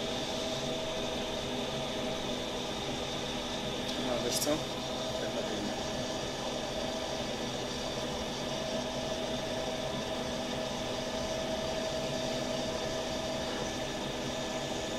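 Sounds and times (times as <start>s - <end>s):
laser cutter whirring and hissing: 0.0s - 14.9s.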